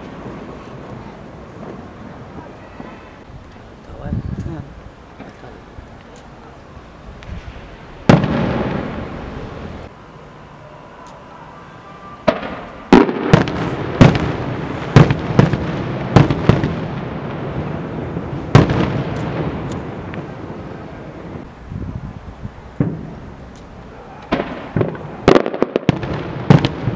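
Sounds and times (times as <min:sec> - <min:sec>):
firework bangs echoing: 0:00.0 - 0:03.3, 0:07.2 - 0:09.9, 0:12.1 - 0:21.5, 0:22.6 - 0:26.9.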